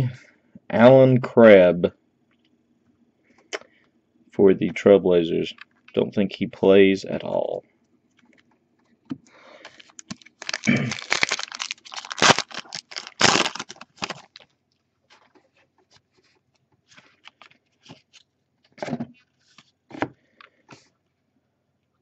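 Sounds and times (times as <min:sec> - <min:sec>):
wrapper crinkling and tearing: 0:09.6 - 0:14.5.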